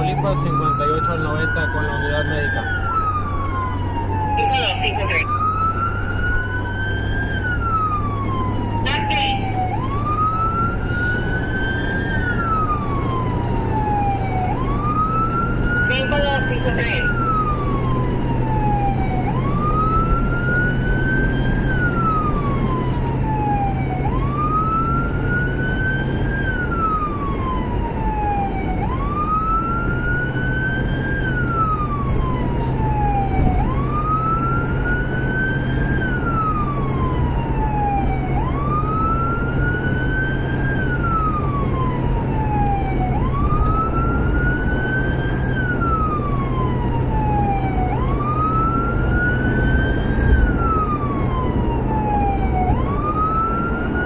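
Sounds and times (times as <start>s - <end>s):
emergency siren wailing: 0.0s - 54.0s
engine and road rumble: 0.0s - 54.0s.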